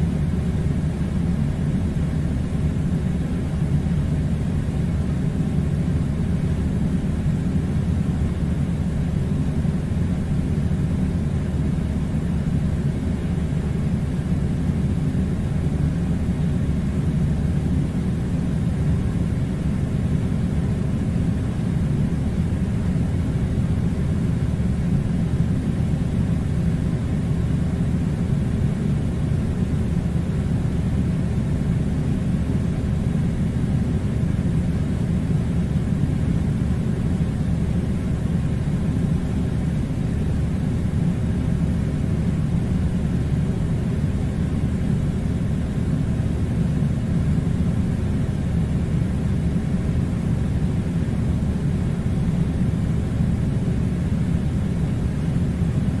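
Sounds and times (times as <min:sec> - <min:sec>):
air conditioning blowing: 0:00.0 - 0:56.0.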